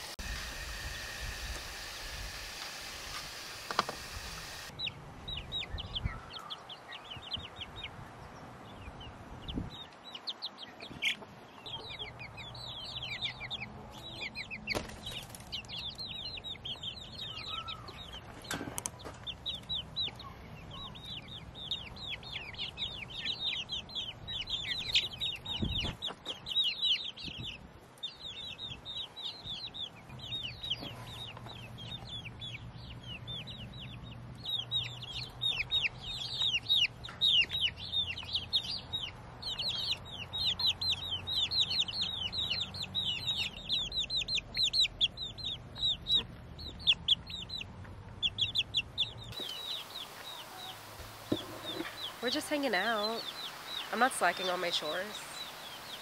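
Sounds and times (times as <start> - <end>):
chickens chirping: 0.0 - 56.0.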